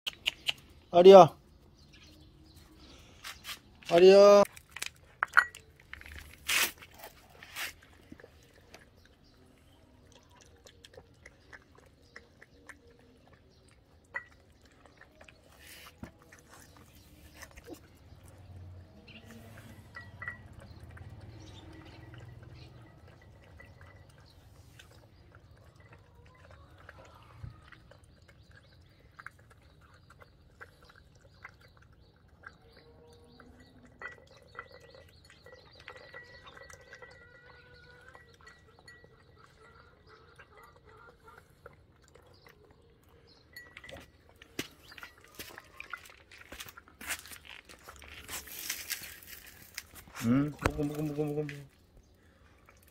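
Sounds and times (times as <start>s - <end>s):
animals chewing and pecking food: 0.1s - 52.9s.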